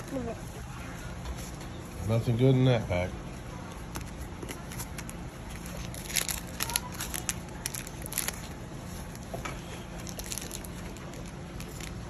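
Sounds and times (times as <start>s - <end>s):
foil wrappers crinkling: 3.8s - 12.0s.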